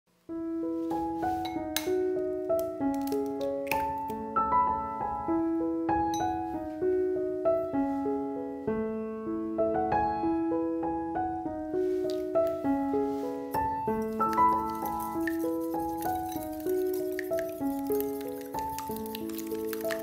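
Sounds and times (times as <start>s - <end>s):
piano melody: 0.3s - 20.0s.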